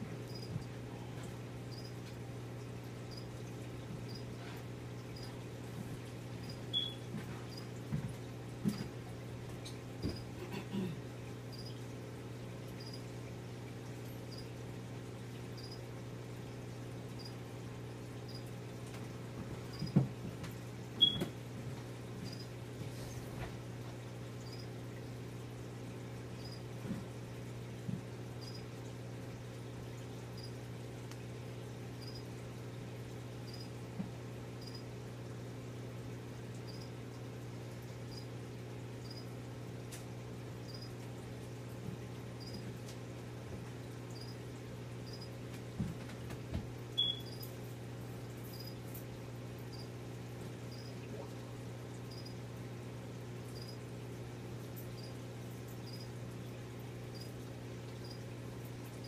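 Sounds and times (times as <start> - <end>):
low hum of aquarium equipment: 0.0 - 59.0
faint high chirp: 6.4 - 7.1, 21.0 - 21.3, 47.0 - 47.4.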